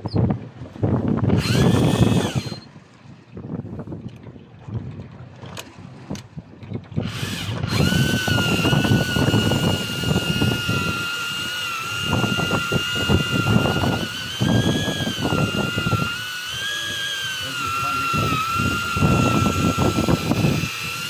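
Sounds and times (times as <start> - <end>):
wind buffeting microphone: 0.0 - 21.0
fishing reel whining: 1.2 - 2.7, 7.0 - 21.0.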